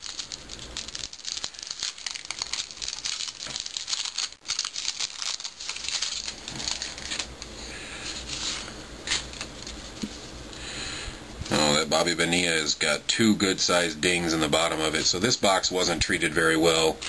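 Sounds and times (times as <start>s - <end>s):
wrapper crinkling and tearing: 0.0s - 7.4s, 8.1s - 9.9s.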